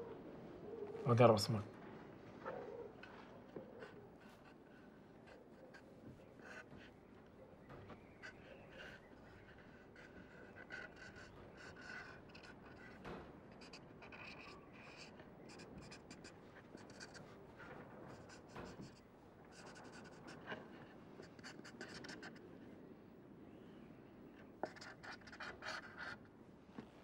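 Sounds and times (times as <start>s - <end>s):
pen scratching on paper: 8.2s - 17.3s, 18.1s - 22.4s, 24.6s - 26.2s.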